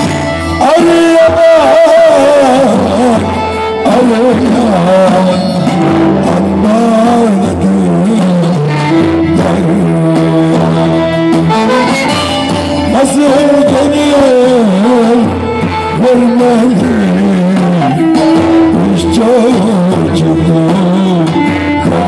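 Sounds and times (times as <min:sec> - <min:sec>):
man singing into microphone: 0:00.0 - 0:22.0
folk tune on violin and lute: 0:08.6 - 0:13.0.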